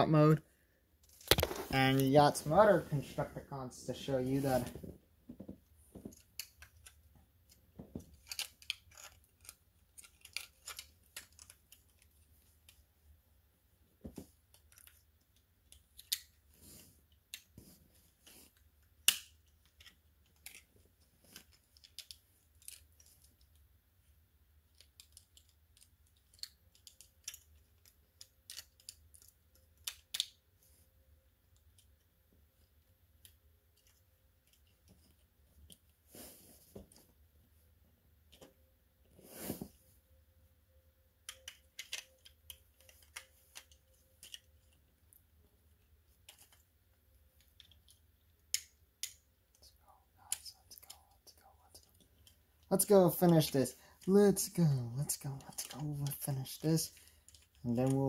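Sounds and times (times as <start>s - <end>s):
plastic toy figures clicking: 6.1s - 12.2s, 24.6s - 30.4s, 41.2s - 45.2s, 47.4s - 49.7s, 50.3s - 58.0s.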